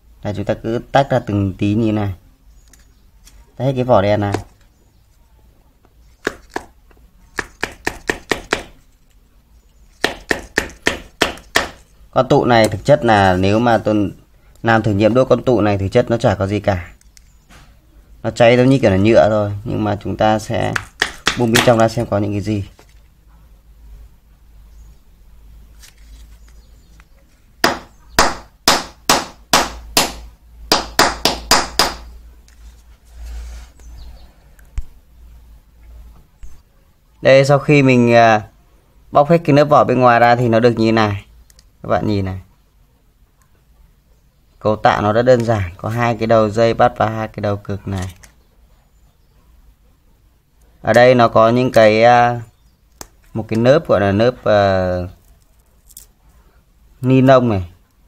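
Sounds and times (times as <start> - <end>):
knife chopping hard casing: 6.2 - 6.7, 7.4 - 8.8, 10.0 - 11.8, 20.8 - 21.8, 27.6 - 32.1.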